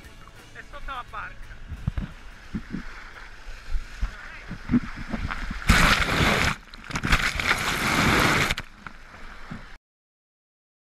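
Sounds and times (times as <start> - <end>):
sea water sloshing and splashing: 1.9 - 9.8.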